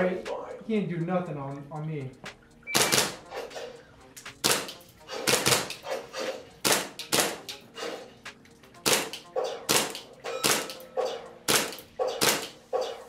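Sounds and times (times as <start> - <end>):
airsoft pistol shots: 4.4 - 5.8, 6.6 - 7.4, 8.9 - 10.8, 11.5 - 12.6.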